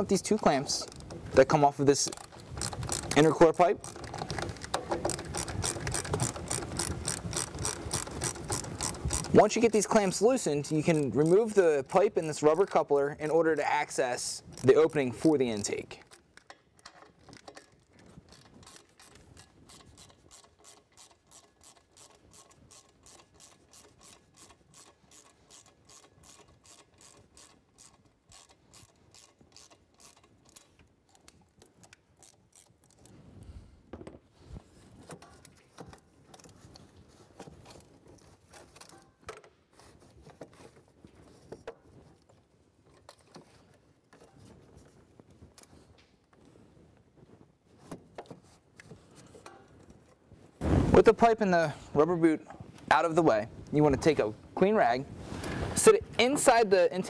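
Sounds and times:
rubber coupler rubbing and knocking: 0.0s - 9.4s
ratchet clicking: 2.0s - 9.4s, 14.6s - 33.0s.

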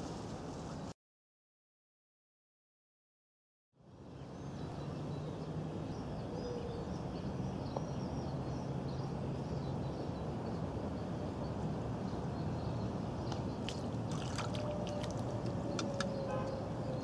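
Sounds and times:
small birds chirping: 3.9s - 17.0s.

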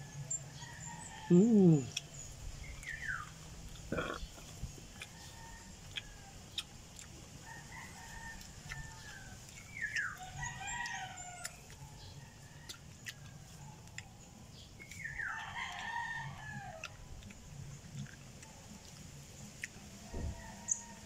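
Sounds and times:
rooster crowing: 0.0s - 1.9s, 5.1s - 6.4s, 7.4s - 9.4s, 10.2s - 11.6s, 15.2s - 17.0s, 20.1s - 21.0s.

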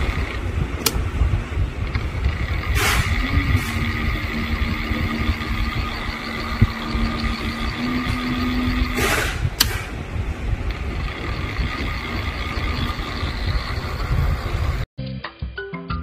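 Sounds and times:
click: 0.8s - 1.0s, 9.6s - 9.8s
servo motor whine: 1.8s - 10.0s, 10.7s - 14.8s
short hiss: 2.8s - 3.8s
background music: 15.0s - 16.0s.

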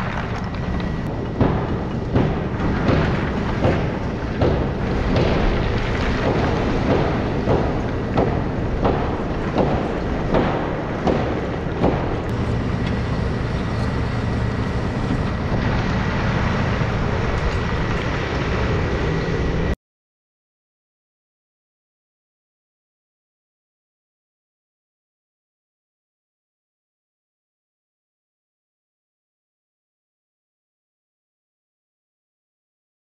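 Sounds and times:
excavator diesel engine running: 0.0s - 19.8s
thin steady whine: 11.6s - 19.8s.

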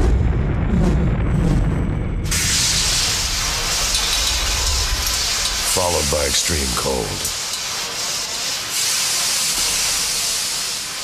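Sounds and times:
low rumble: 0.0s - 5.7s
loud hiss of rushing gas: 2.3s - 11.0s.

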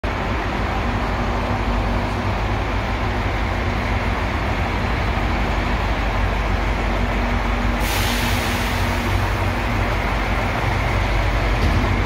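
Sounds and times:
machinery hiss: 7.7s - 10.1s.

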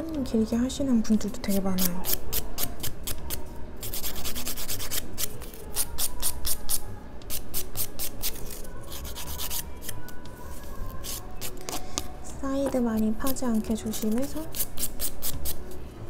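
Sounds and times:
nail file rasping on fingernail: 1.5s - 10.0s, 13.0s - 15.7s.

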